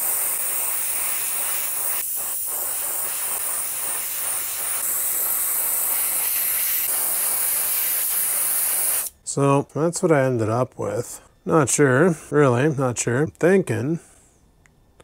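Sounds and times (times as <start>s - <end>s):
airbrush spraying hiss: 0.0s - 9.2s.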